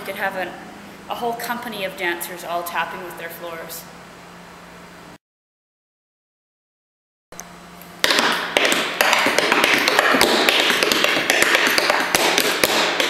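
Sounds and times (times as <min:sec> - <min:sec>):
tap shoes on wooden floor: 0:08.0 - 0:13.0.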